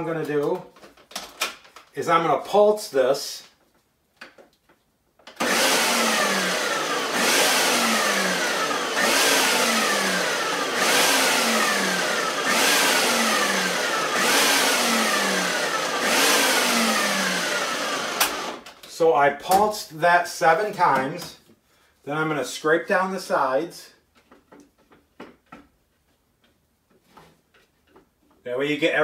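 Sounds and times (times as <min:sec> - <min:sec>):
food processor motor whine: 0:05.3 - 0:18.7.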